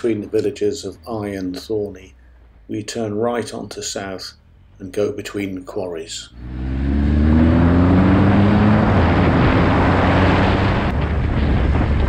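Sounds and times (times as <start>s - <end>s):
motorcycle engine accelerating: 6.3s - 12.0s
wind noise on microphone: 8.2s - 12.0s.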